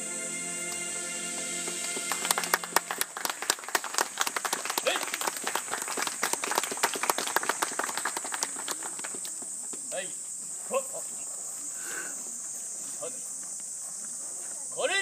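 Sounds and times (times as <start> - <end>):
insects droning: 0.0 - 15.0
audience clapping: 1.3 - 9.4.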